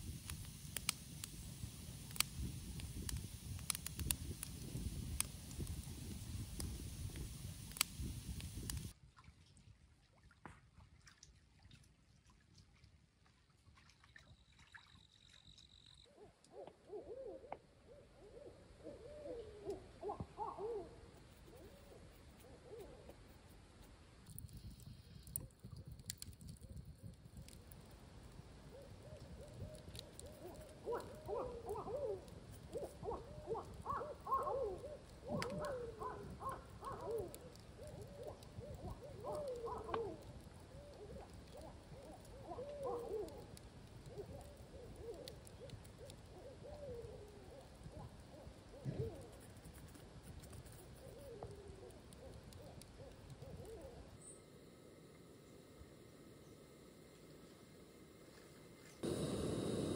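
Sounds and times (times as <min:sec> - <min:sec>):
hooting animal calls: 0:16.1 - 0:23.0, 0:30.3 - 0:40.2
steady low noise: 0:54.3 - 0:59.9.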